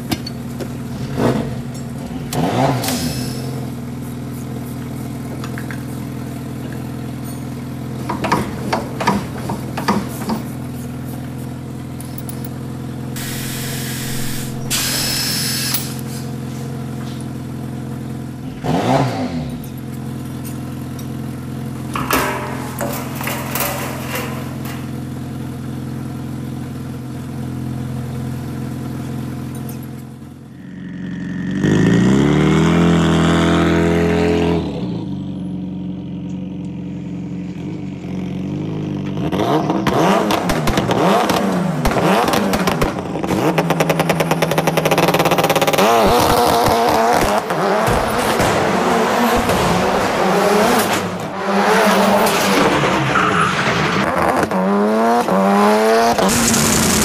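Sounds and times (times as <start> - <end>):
rally car engine revving: 0.0 - 7.1, 13.2 - 35.5, 37.5 - 57.0
rapid clattering: 21.8 - 25.4.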